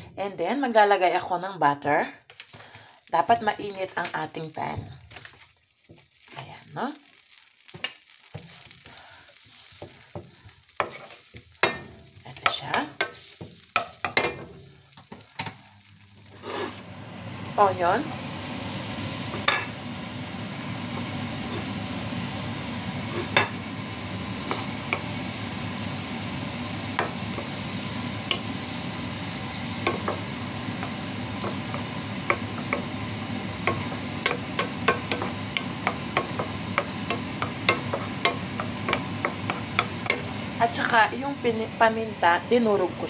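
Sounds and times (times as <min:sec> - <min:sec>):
onion sizzling in butter: 0:00.0 - 0:43.0
wooden spatula tapping pan: 0:29.8 - 0:32.9, 0:33.6 - 0:40.3.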